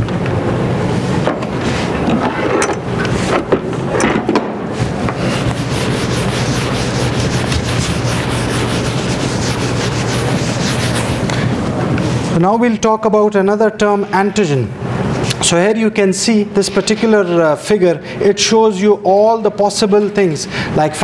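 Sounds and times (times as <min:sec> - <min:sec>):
low room hum: 0:00.0 - 0:21.0
eraser rubbing on whiteboard: 0:05.1 - 0:11.4.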